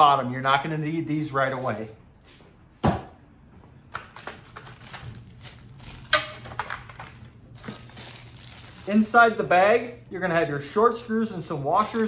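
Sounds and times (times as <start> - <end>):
plastic packaging crinkling: 4.1 - 10.1.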